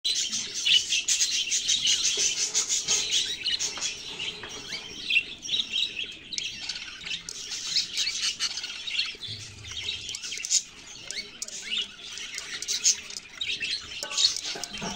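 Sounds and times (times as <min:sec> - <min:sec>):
nestlings chirping: 0:00.1 - 0:14.9.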